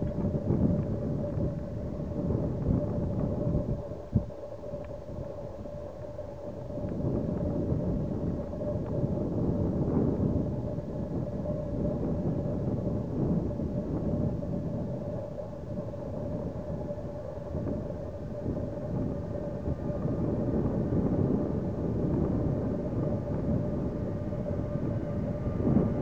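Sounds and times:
thin steady whine: 0.0s - 26.0s.

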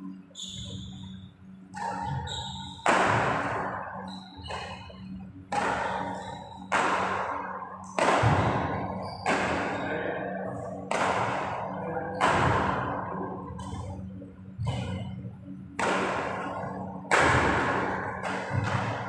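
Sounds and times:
rackets smacking shuttlecock: 1.7s - 4.9s, 5.5s - 9.8s, 10.8s - 12.9s, 15.8s - 19.0s.

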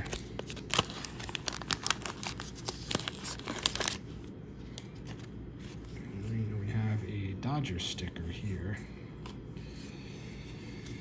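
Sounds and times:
wax paper crinkling and tearing: 0.0s - 6.5s.

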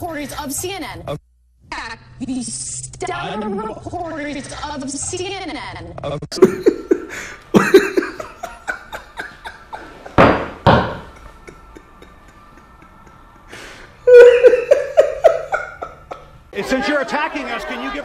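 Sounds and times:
man laughing hard: 6.4s - 13.3s, 14.0s - 16.4s.

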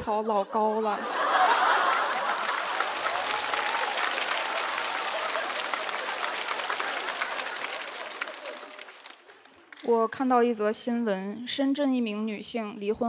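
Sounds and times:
audience applauding: 1.2s - 9.8s.

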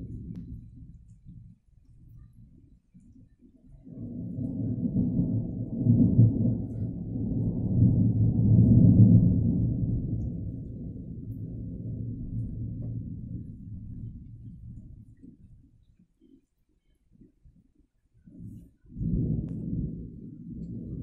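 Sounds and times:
rolling thunder: 0.0s - 1.4s, 3.7s - 15.4s, 18.3s - 21.0s.

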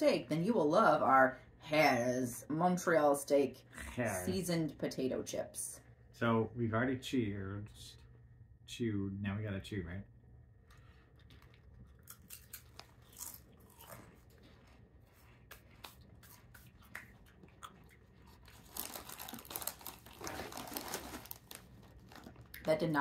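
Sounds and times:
potato chips crunching: 11.2s - 14.6s, 15.5s - 22.7s
foil bag crinkling: 18.3s - 23.0s.

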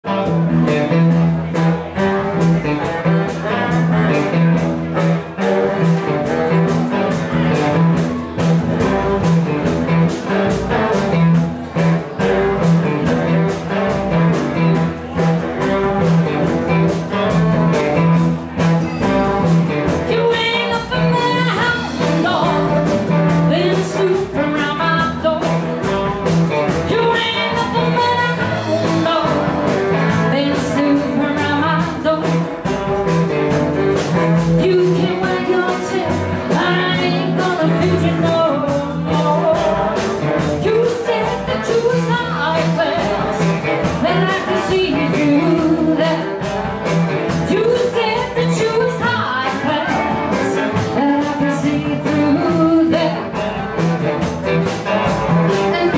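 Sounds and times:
rock band playing: 0.0s - 55.9s
fast drum beat: 0.1s - 55.9s
woman singing: 19.8s - 26.0s, 26.8s - 32.8s, 34.4s - 46.6s, 47.3s - 53.6s, 55.5s - 55.9s.

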